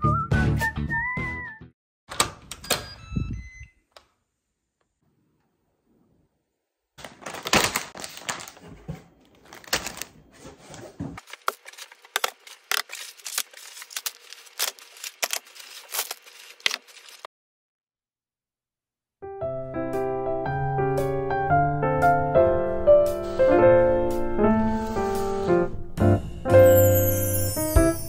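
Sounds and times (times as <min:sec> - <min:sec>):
items clicking and tapping: 0:07.0 - 0:10.2
plastic packaging crinkling: 0:07.0 - 0:17.3.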